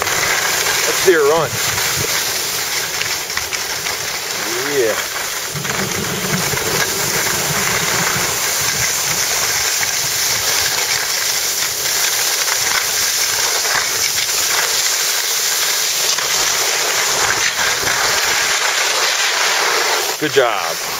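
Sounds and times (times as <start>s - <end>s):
skis sliding over snow: 0.0s - 20.9s
wind across microphone: 0.8s - 3.2s, 4.0s - 11.8s
low rumble: 5.2s - 9.5s.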